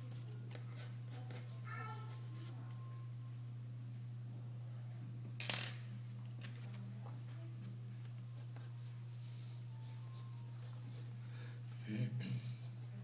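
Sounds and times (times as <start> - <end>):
steady low hum: 0.0 - 13.0
pencil sketching on paper: 9.8 - 11.1.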